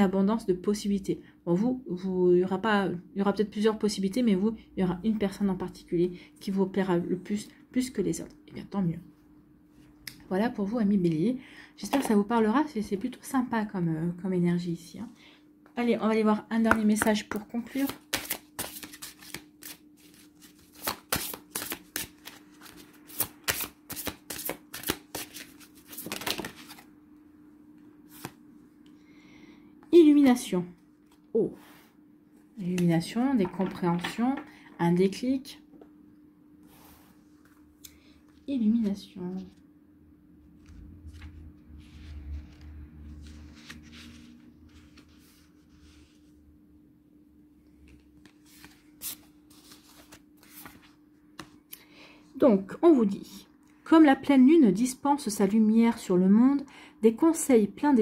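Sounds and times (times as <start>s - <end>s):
cards being shuffled: 16.8s - 26.9s, 28.1s - 28.4s, 47.9s - 51.6s
paper rustling: 17.7s - 26.9s, 40.6s - 46.3s, 48.2s - 51.6s.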